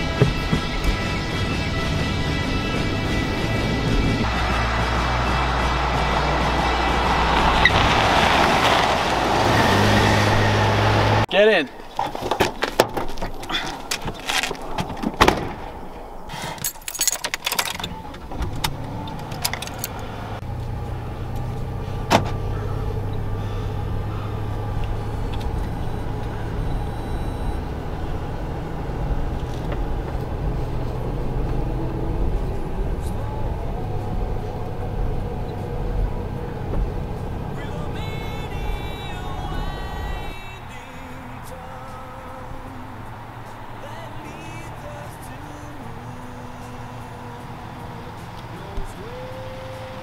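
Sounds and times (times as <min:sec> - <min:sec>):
car doors shutting: 0:00.0 - 0:01.4, 0:12.0 - 0:20.4, 0:21.3 - 0:50.0
car engine humming: 0:00.0 - 0:50.0
keys rattling: 0:16.4 - 0:20.1.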